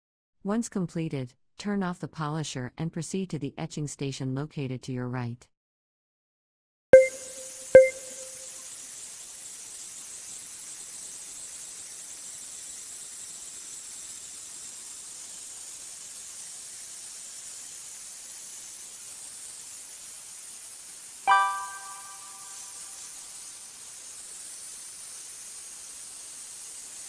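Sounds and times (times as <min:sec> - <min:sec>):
short pitched chime: 0:07.0 - 0:08.5, 0:21.3 - 0:22.7.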